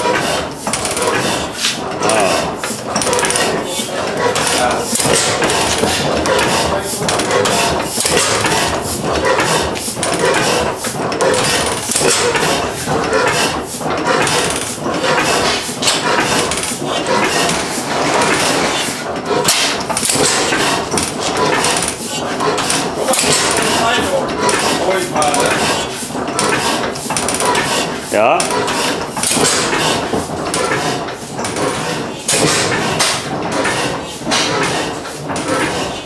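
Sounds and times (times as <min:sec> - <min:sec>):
stationary engine knocking and clanking: 0:00.0 - 0:36.0.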